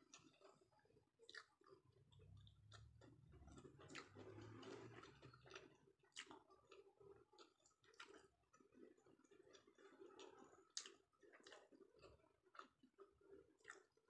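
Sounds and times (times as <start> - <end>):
close-up chewing: 0.0 - 14.0
wet mouth clicks: 1.2 - 6.5.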